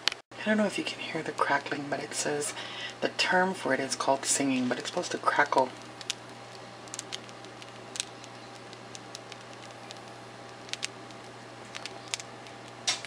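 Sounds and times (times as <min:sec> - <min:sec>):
bread crust crackling: 0:03.8 - 0:13.0.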